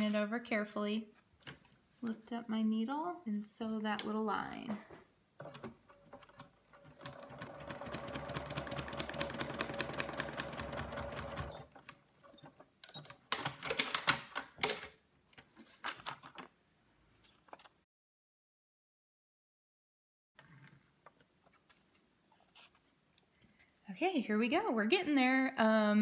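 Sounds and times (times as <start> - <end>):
sewing machine stitching: 5.4 - 14.0
paper rustling: 15.4 - 16.5.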